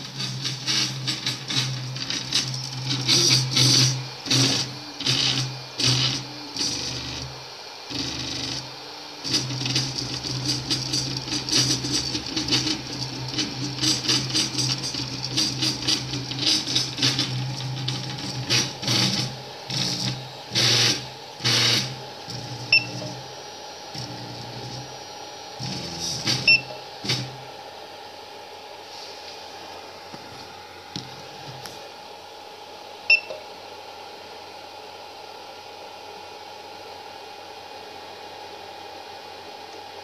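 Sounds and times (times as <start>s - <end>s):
stepper motors buzzing and whirring: 0.0s - 27.4s.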